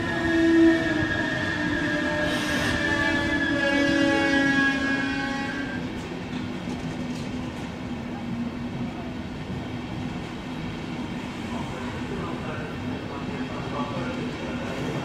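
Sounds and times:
train horn: 0.0s - 5.9s
train coaches rumbling past: 0.0s - 15.0s.

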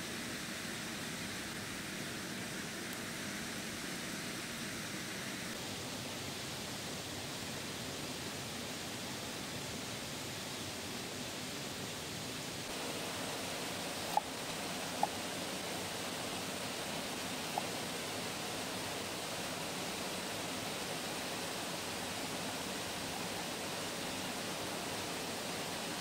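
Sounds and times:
waterfall rushing: 12.7s - 26.0s.

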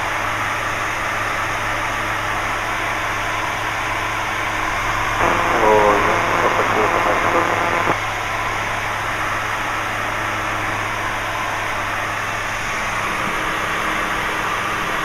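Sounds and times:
light aircraft engine drone: 0.0s - 15.0s.

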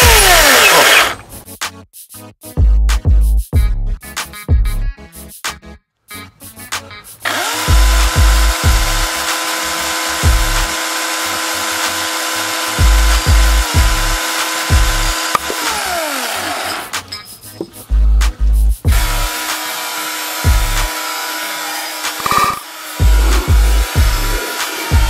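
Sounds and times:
electric chainsaw whining: 0.0s - 1.3s, 7.2s - 17.0s, 18.9s - 25.0s
music beat with low thumps: 2.4s - 5.0s, 7.7s - 8.9s, 12.8s - 14.0s, 17.8s - 19.1s, 20.5s - 20.8s, 23.0s - 25.0s.

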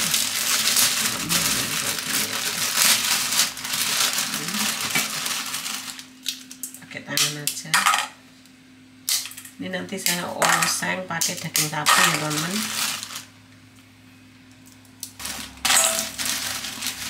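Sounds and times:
plastic bag crinkling: 0.0s - 6.6s, 11.3s - 13.4s, 14.7s - 17.0s.

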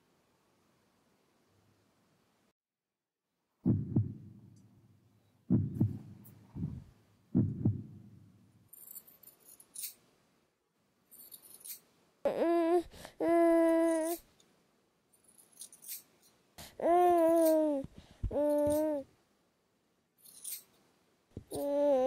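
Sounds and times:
low knocks with sharp clicks: 5.5s - 8.2s.

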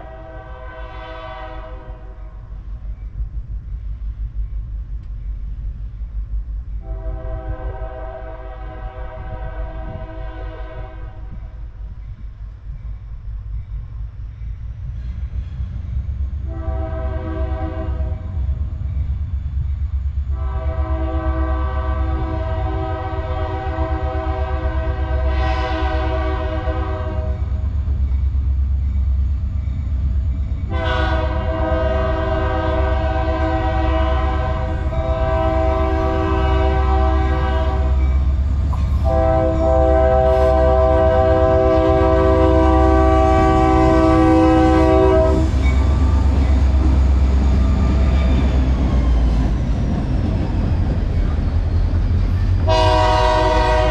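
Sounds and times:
locomotive air horn blasts: 0.0s - 2.2s, 6.8s - 11.5s, 16.5s - 18.4s, 20.3s - 27.6s, 30.7s - 38.1s, 38.9s - 45.6s, 52.6s - 53.9s
locomotive engine rumble: 0.0s - 53.9s.

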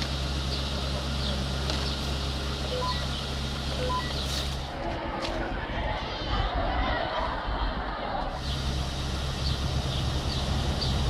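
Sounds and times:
radio low hum: 0.0s - 11.0s
rising alert beeps: 2.7s - 3.2s, 3.8s - 4.3s.

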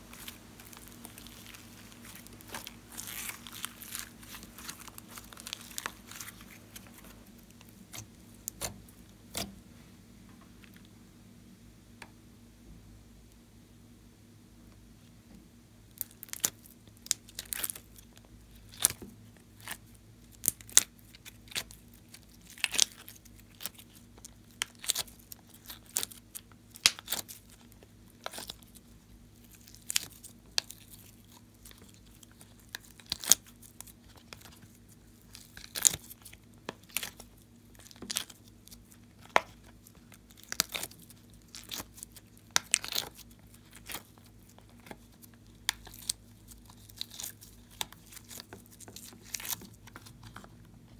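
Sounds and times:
sticky slime pops and crackles: 22.4s - 27.5s, 35.3s - 50.4s.

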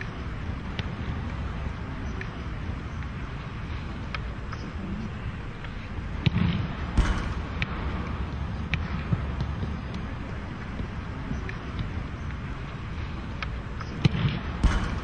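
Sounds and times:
low background rumble: 0.0s - 15.0s
football being kicked: 6.2s - 7.7s.

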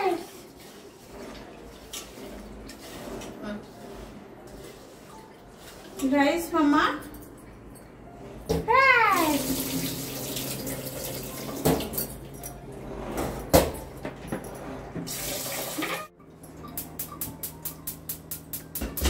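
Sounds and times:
tap water running into pot: 9.2s - 12.0s.

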